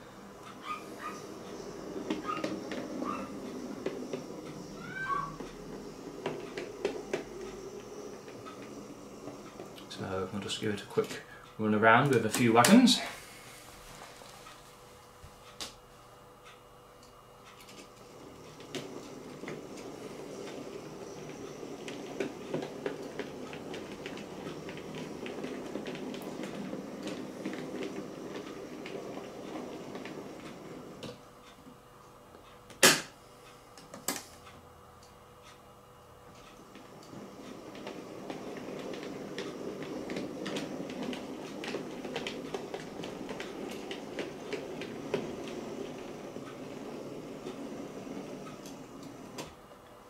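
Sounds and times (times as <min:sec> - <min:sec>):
wheels clicking over rail joints: 0:00.0 - 0:12.9, 0:17.4 - 0:31.6, 0:36.3 - 0:50.0
model train motor hum: 0:18.1 - 0:31.1.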